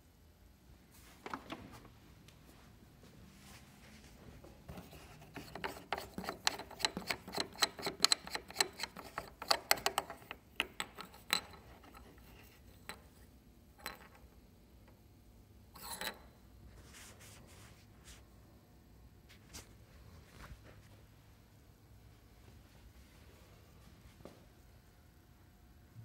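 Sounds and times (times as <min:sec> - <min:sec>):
small plastic clicks and rubs: 0:04.7 - 0:13.2.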